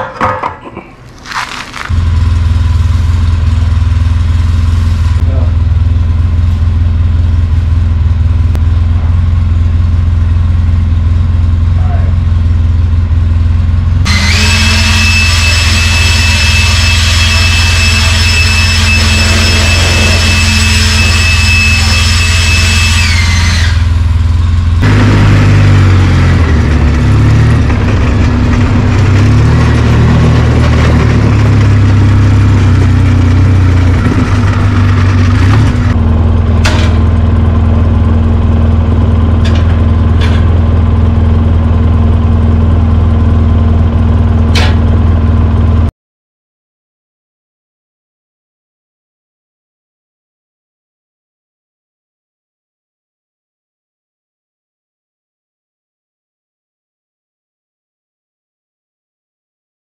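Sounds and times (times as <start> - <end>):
parts dropped knocking: 0.0 - 0.9
quad bike engine running: 1.7 - 14.1, 23.8 - 45.9
high whine: 1.9 - 45.9.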